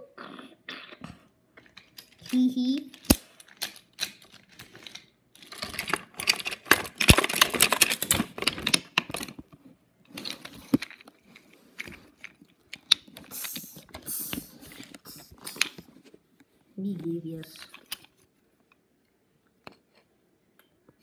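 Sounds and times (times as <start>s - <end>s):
wooden toy trains clattering: 1.6s - 15.8s, 17.4s - 18.2s.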